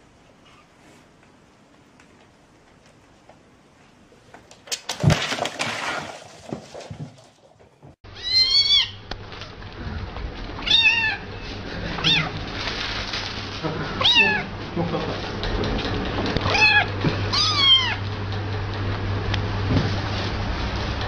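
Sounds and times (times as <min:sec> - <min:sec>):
kitten meowing: 0:08.2 - 0:09.0, 0:10.6 - 0:11.2, 0:12.0 - 0:12.4, 0:14.0 - 0:14.5, 0:16.4 - 0:18.0
clattering rustling noise: 0:11.4 - 0:14.0.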